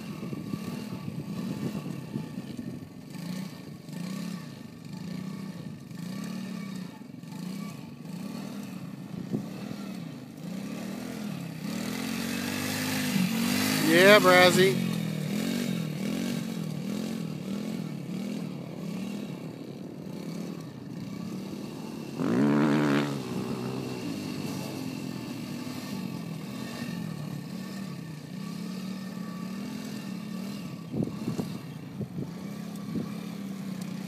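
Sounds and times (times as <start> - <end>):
quad bike engine revving: 0.0 - 34.0.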